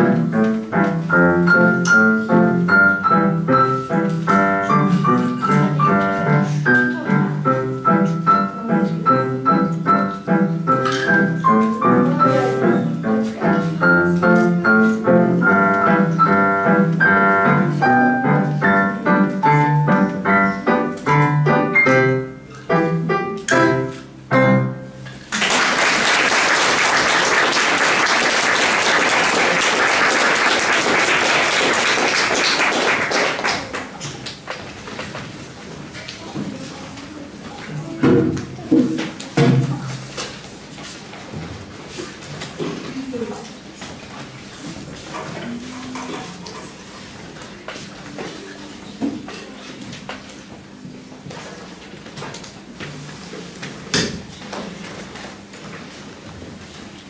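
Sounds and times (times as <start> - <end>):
digital piano piece: 0.0 - 25.3
audience applause: 25.3 - 34.0.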